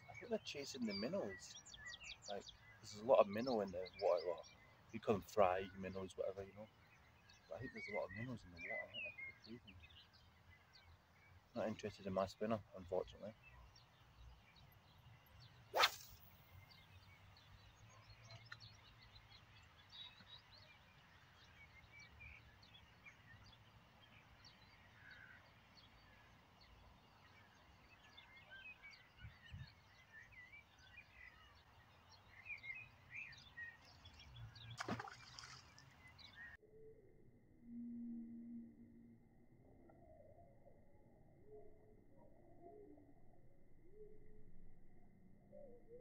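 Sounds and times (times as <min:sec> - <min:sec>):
faint birdsong: 0:00.0 - 0:46.0
riverside ambience: 0:14.6 - 0:24.4.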